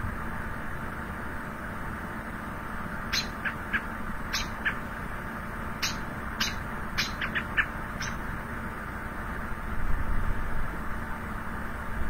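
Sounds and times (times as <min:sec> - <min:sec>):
robin alarm calls: 0:03.0 - 0:05.0, 0:05.8 - 0:08.3.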